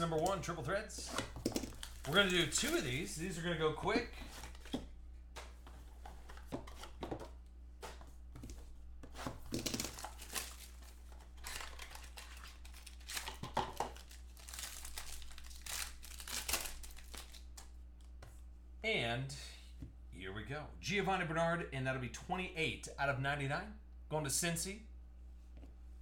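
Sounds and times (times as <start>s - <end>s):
plastic wrapping crinkling and tearing: 1.2s - 3.4s, 9.5s - 17.7s.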